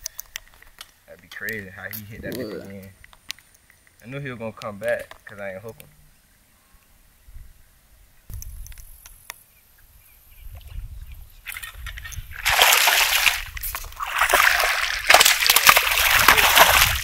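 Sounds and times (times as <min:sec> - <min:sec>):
fish splashing in water: 0:12.4 - 0:17.0.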